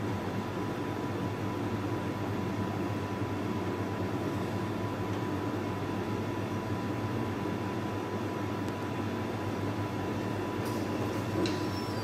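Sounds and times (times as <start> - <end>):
mechanical hum and hiss: 0.0 - 12.0
faint high whine: 9.7 - 12.0.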